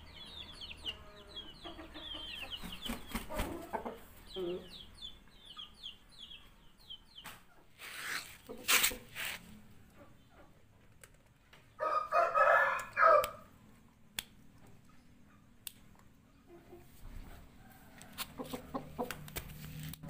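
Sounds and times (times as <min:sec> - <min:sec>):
rooster crowing: 0:11.8 - 0:13.5.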